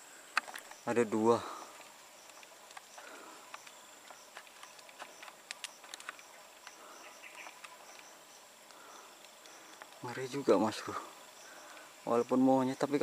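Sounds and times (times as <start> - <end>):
insects buzzing and chirping: 0.0 - 13.0
sharp clicks: 1.8 - 10.1.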